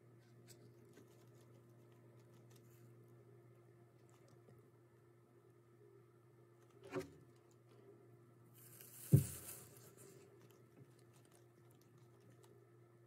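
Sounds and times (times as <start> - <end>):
small animal chewing crunches: 0.0 - 3.2, 3.9 - 4.6, 8.6 - 12.8
rustle: 8.6 - 10.2
sharp thump: 9.0 - 9.6.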